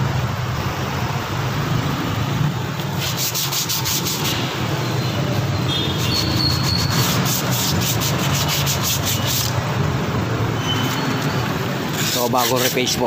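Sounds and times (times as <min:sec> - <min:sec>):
sandpaper rubbing: 0:02.9 - 0:04.5, 0:06.0 - 0:09.6, 0:11.9 - 0:13.0.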